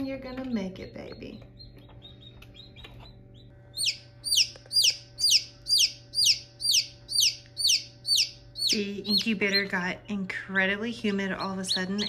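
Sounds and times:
faint steady hum: 0.0s - 12.0s
chick peeping loudly: 1.6s - 9.9s, 11.4s - 12.0s.

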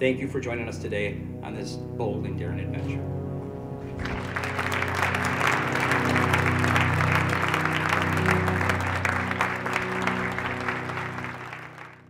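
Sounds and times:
music playing: 0.0s - 12.0s
audience applauding: 3.8s - 12.0s.

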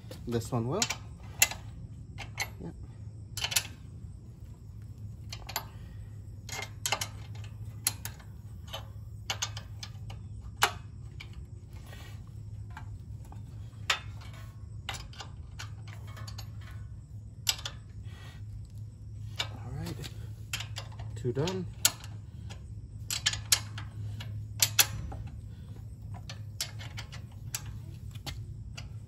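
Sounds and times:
steady low hum: 0.0s - 29.0s
wrench clicking on bolts: 3.4s - 3.8s, 5.2s - 11.4s, 12.6s - 17.9s, 19.3s - 29.0s.

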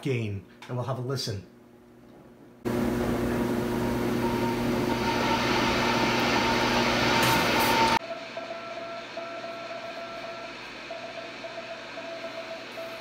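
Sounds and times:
morse code beat tone: 3.8s - 13.0s.

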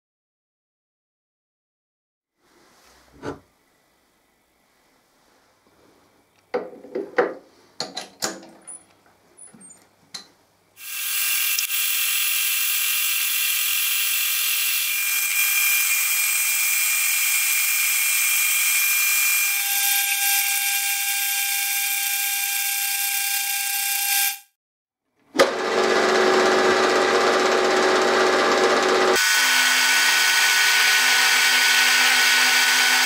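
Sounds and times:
metal lathe cutting steel: 10.8s - 23.4s, 25.5s - 33.0s.

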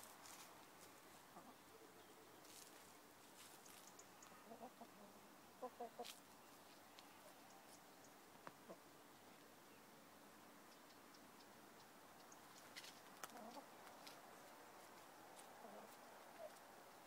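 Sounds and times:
chickens clucking: 1.1s - 1.8s, 2.4s - 7.7s, 8.5s - 8.9s, 12.5s - 14.2s, 15.4s - 16.6s.

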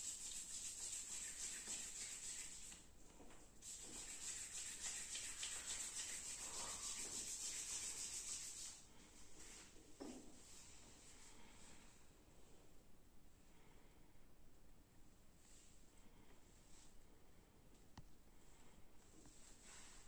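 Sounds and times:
hands rubbing bare skin: 0.0s - 10.8s.

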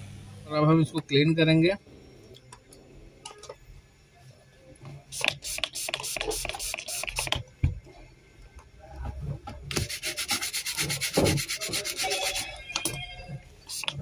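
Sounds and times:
brush scrubbing circuit board: 9.7s - 12.6s, 13.7s - 14.0s.

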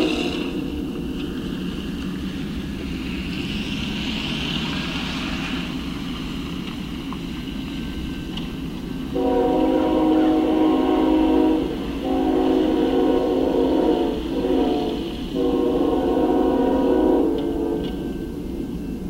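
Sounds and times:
train air horn: 0.0s - 1.0s, 9.1s - 18.6s
diesel locomotives rumbling: 0.0s - 19.0s.

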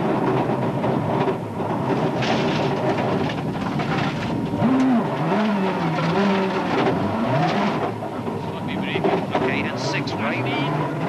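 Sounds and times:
rally car engine revving: 0.0s - 11.0s
road and tyre noise: 0.0s - 11.0s.

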